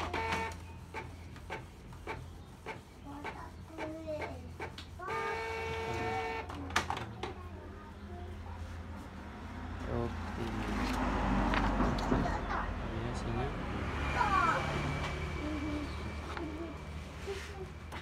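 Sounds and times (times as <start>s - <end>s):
printer motor whine: 0.0s - 2.2s
printer clicks and whirs: 0.0s - 2.8s.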